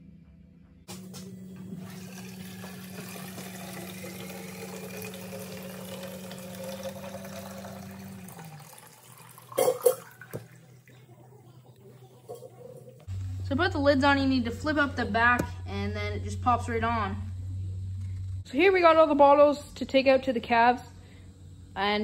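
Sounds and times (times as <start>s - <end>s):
liquid pouring into plastic bottle: 1.7s - 11.0s.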